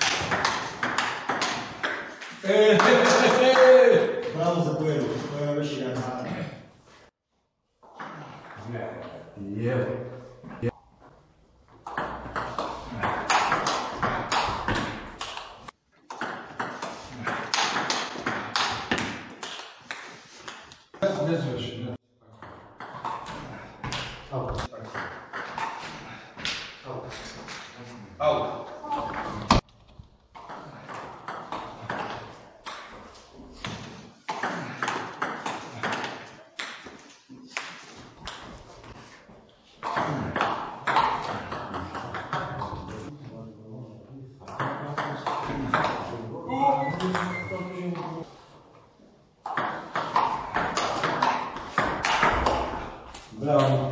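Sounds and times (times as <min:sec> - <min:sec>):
table tennis ball hits: 0:00.0 - 0:02.4, 0:11.8 - 0:20.6, 0:39.8 - 0:43.0, 0:49.4 - 0:53.0.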